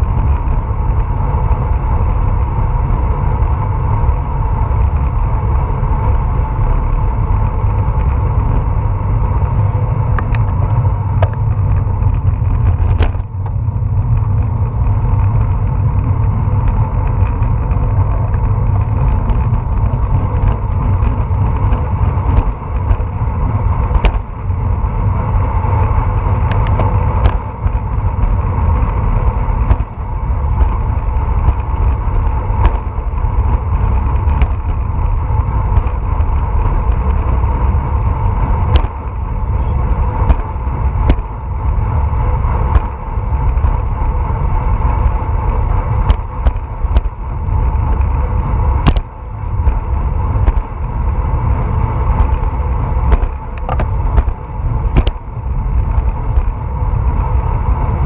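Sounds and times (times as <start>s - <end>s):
bicycle tyre noise: 0.0s - 58.0s
wind rush: 0.0s - 58.0s
clicks and knocks from bumps: 38.7s - 39.2s, 50.4s - 50.7s, 53.1s - 55.2s.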